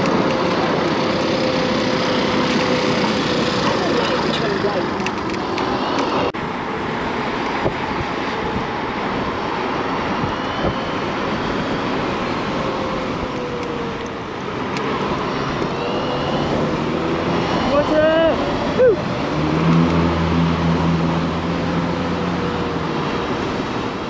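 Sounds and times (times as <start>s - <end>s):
road and tyre noise: 0.0s - 24.0s
wind rushing over microphone: 0.0s - 24.0s
faint whine sliding down: 15.3s - 23.4s.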